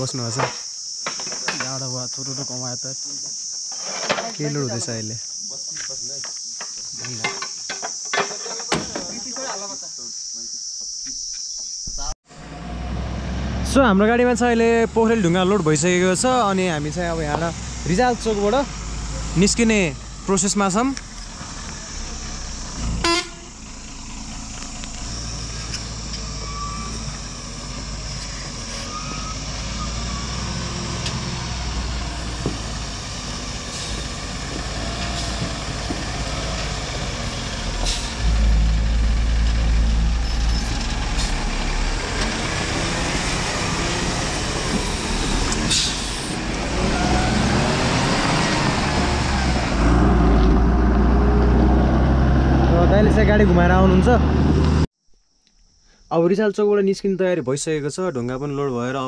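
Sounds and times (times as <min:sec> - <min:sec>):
diesel truck engine running: 0:12.3 - 0:54.9.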